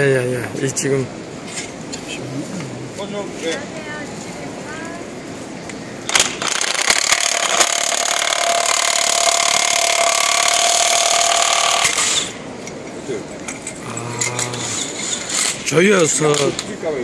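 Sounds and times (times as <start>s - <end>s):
impact wrench hammering: 6.1s - 12.3s.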